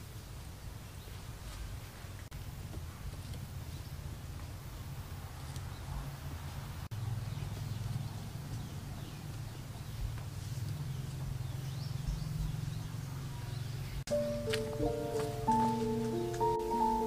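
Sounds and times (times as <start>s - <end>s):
music with held tones: 14.1s - 17.0s.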